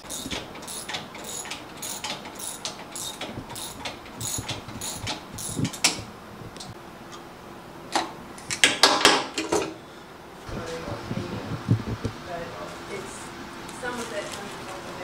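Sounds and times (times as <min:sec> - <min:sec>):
ratchet tool clicking: 0:00.0 - 0:06.0.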